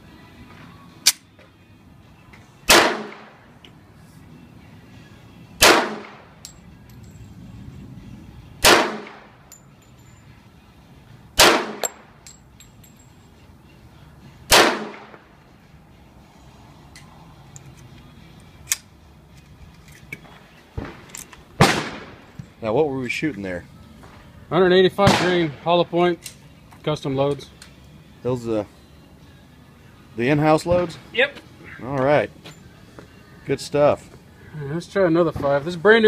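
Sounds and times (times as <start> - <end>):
pistol shots with echo: 2.7 - 3.4, 5.6 - 6.3, 8.6 - 9.3, 11.4 - 12.1, 14.5 - 15.2, 20.8 - 22.3, 25.0 - 25.7.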